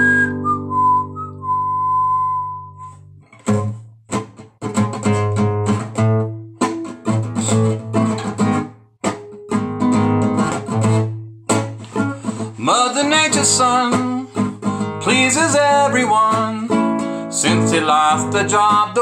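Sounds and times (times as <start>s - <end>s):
person whistling a tune: 0.0s - 3.1s
acoustic guitar strumming chords: 0.0s - 19.0s.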